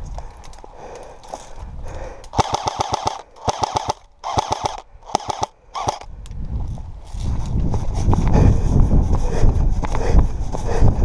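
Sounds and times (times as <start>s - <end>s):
airsoft gun firing bursts: 2.3s - 6.1s.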